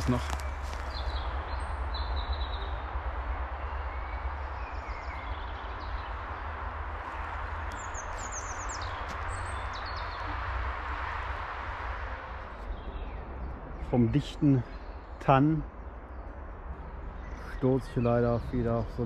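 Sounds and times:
birds chirping: 0:00.0 - 0:19.0
distant road traffic hum: 0:00.0 - 0:19.0.

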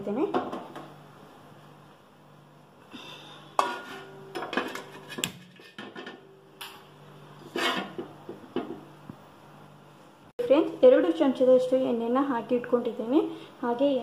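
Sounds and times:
metal pot knocks and scrapes: 0:03.6 - 0:06.3, 0:07.4 - 0:08.8.

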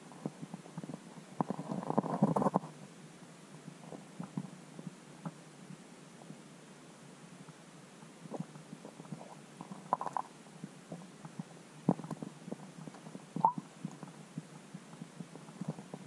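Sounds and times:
low steady hum: 0:00.0 - 0:16.0
muffled underwater clicks and knocks: 0:00.2 - 0:02.8, 0:08.4 - 0:10.3, 0:10.9 - 0:16.0.

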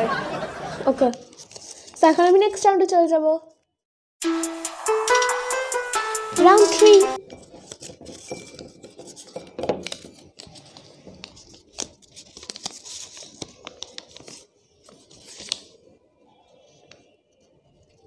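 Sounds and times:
paper crinkling and rustling: 0:01.2 - 0:02.5, 0:07.2 - 0:18.0.

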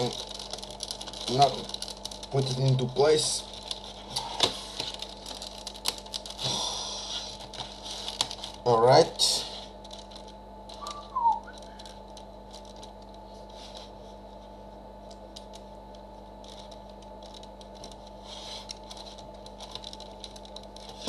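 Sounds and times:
plastic toy clicks and rattles: 0:00.0 - 0:03.8
steady low hum: 0:00.0 - 0:21.0
brief falling tone: 0:10.8 - 0:11.7.

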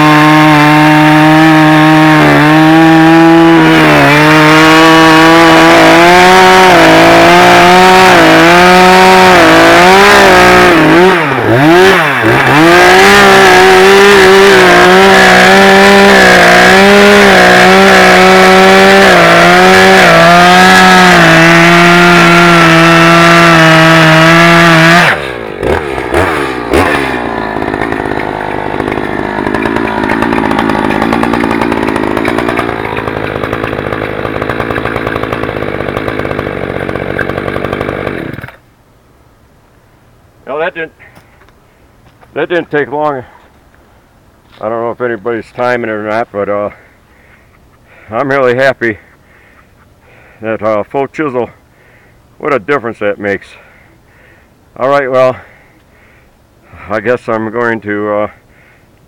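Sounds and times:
chainsaw cutting log: 0:00.0 - 0:38.6.

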